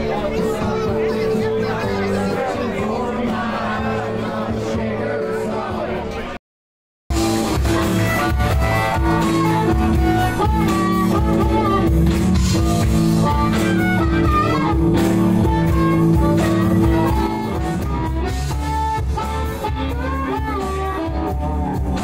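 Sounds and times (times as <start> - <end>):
drums: 0.0 - 6.3, 7.1 - 22.0
bass guitar: 0.0 - 6.4, 7.1 - 22.0
electric guitar: 7.1 - 22.0.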